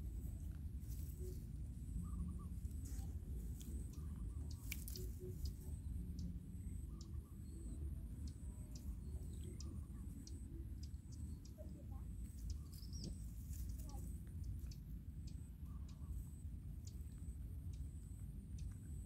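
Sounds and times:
low rumble: 0.0s - 19.0s
faint bird chirps: 0.1s - 19.0s
clicks and rustles in leaves: 2.6s - 5.6s.

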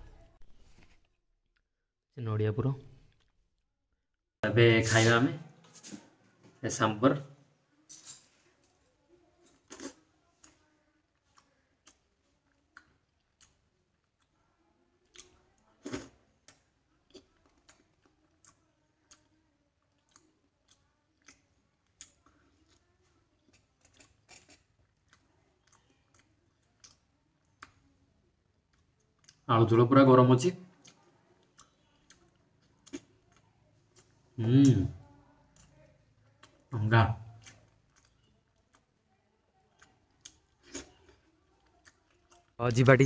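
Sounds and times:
man chewing: 9.5s - 14.3s, 15.1s - 27.8s, 28.4s - 29.4s, 30.7s - 34.9s, 37.3s - 38.9s, 39.8s - 43.0s.

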